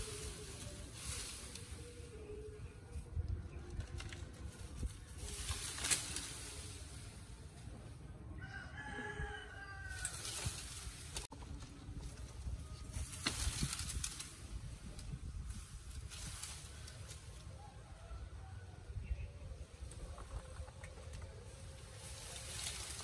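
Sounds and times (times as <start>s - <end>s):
leaves and branches rustling: 0.0s - 23.0s
rooster crowing: 8.4s - 10.4s.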